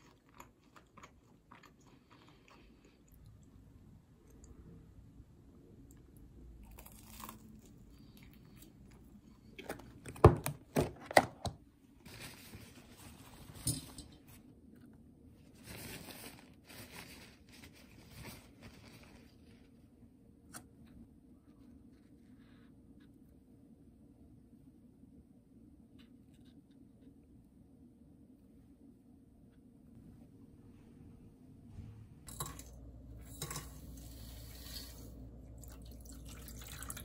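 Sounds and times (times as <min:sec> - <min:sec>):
doughnut tearing and chewing: 0:06.6 - 0:09.7.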